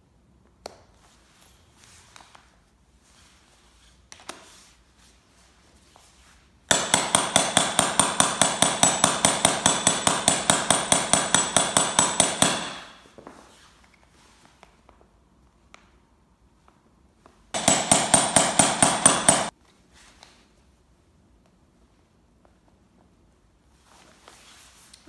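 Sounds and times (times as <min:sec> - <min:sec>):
hammer striking metal die: 0:06.7 - 0:13.0, 0:17.6 - 0:19.5.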